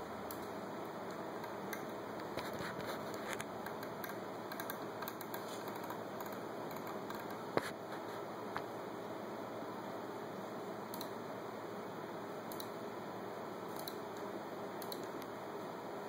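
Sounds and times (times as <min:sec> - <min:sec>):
laptop keys clicking: 0:03.4 - 0:07.4.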